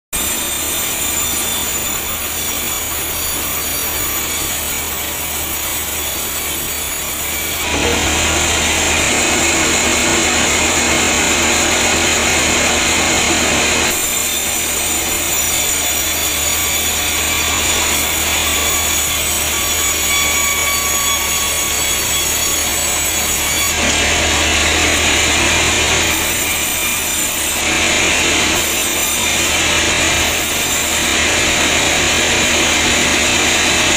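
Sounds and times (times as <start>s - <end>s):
band saw cutting logs: 0.1s - 33.9s
low motor hum: 7.6s - 13.9s.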